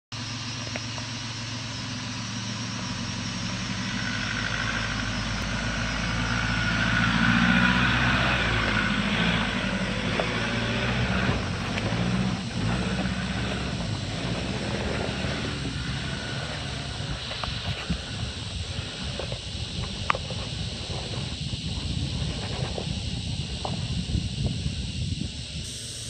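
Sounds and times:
diesel engine under load: 0.1s - 26.0s.

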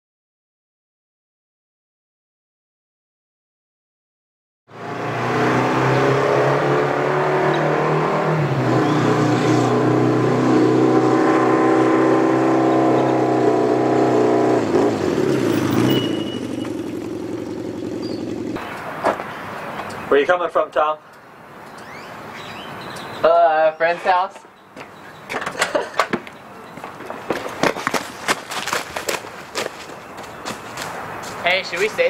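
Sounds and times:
motorcycle engine running: 12.6s - 18.6s.

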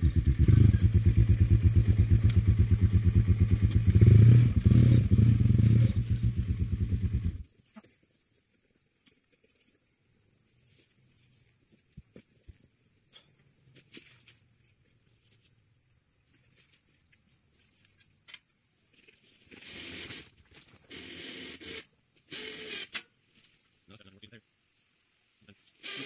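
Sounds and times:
insects buzzing: 0.0s - 26.0s.

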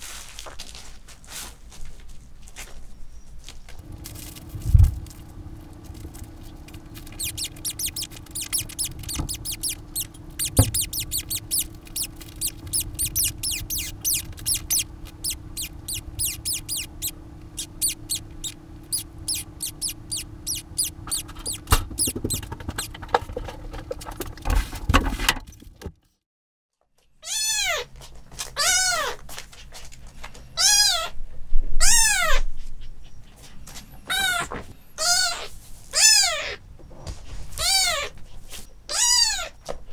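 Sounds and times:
steady low hum: 3.7s - 25.8s
kitten claws scratching pad: 3.8s - 24.7s
kitten mewing: 7.0s - 22.9s.

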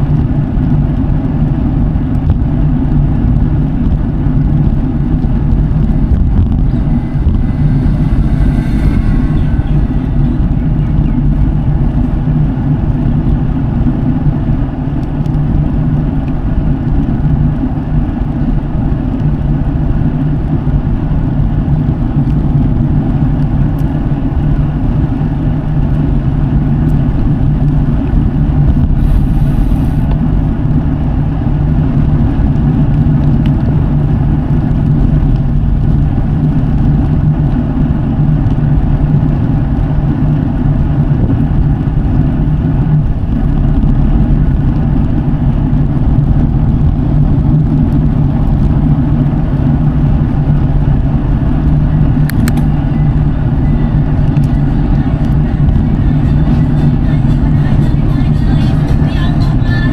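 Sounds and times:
bike tyres rolling on pavement: 0.0s - 55.8s.

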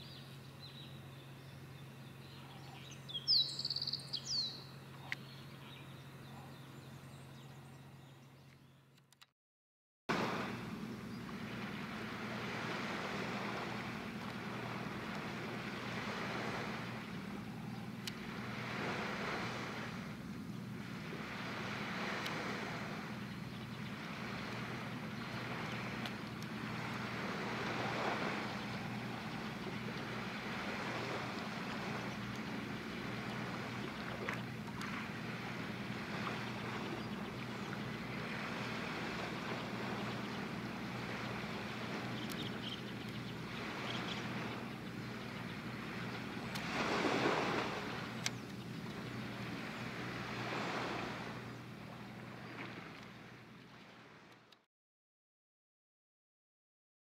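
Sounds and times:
steady low hum: 0.0s - 9.0s, 10.1s - 54.1s
small waves washing in: 10.1s - 54.4s
wind on microphone: 10.2s - 52.8s.

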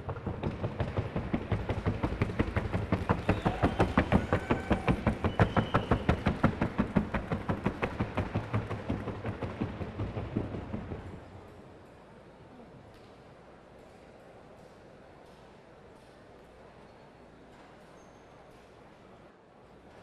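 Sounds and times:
hooves beating on wooden board: 0.0s - 11.2s.

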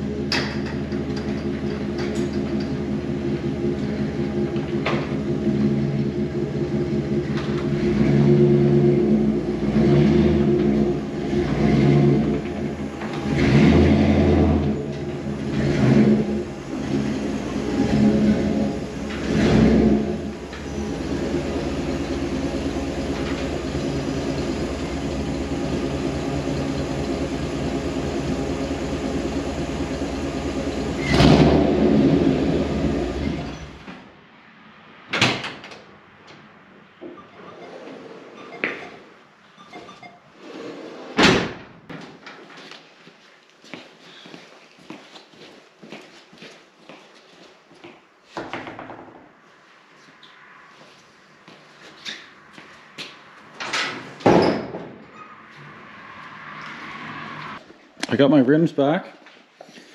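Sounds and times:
truck engine revving and idling: 0.0s - 33.9s.

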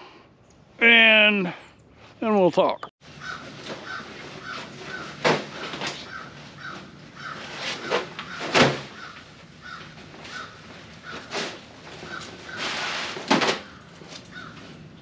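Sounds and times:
plastic tarp rustling and crackling: 7.4s - 14.7s.

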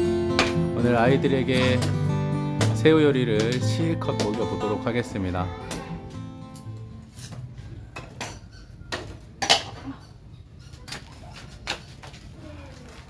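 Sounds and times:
cleaver chopping wood: 4.2s - 4.5s.

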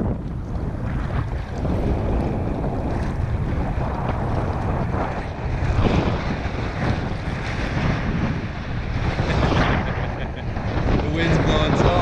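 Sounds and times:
water slapping around kayak: 0.0s - 12.0s
wind buffeting microphone: 0.0s - 12.0s.

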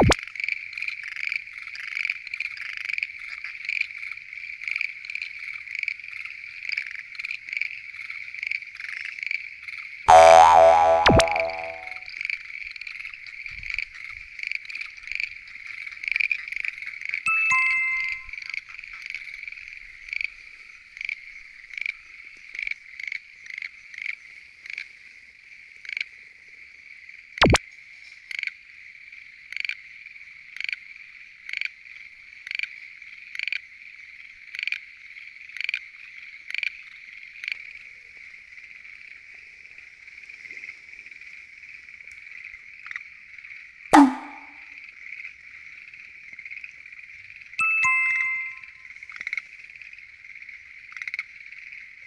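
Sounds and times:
sound falling in pitch: 10.1s - 12.0s, 44.0s - 44.5s
frog repeating short calls: 44.0s - 44.5s
sharp knock: 44.0s - 44.5s.

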